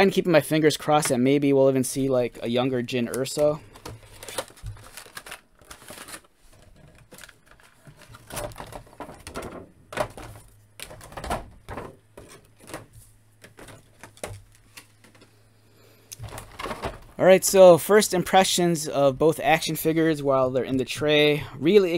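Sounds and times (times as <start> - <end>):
plastic tray clicking and crinkling: 3.1 - 15.3.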